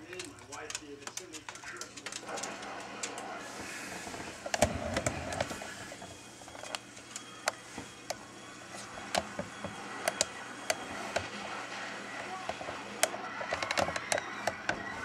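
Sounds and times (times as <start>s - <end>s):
sharp clicks and taps: 0.0s - 3.2s.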